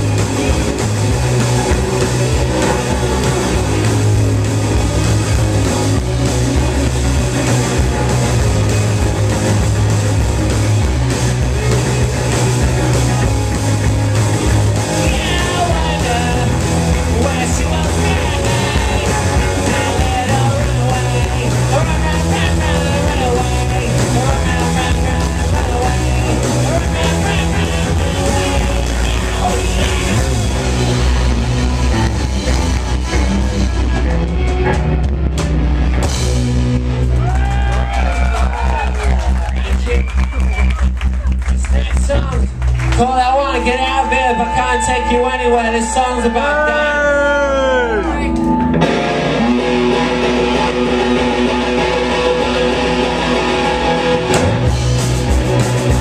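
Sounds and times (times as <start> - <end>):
punk rock band playing: 0.0 - 56.0
wavering melodic line: 43.4 - 47.0.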